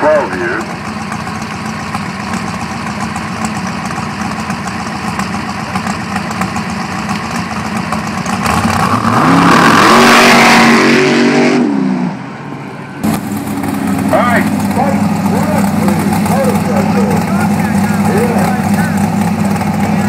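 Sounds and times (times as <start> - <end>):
dragster engine idling: 0.0 - 8.9, 12.7 - 20.0
dragster engine revving at full throttle: 0.0 - 20.0.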